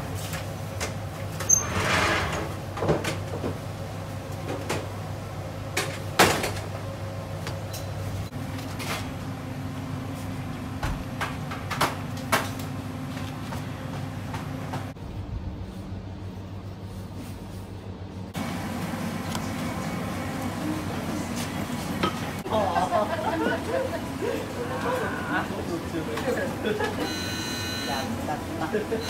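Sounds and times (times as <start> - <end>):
machine hum: 8.2 - 29.0.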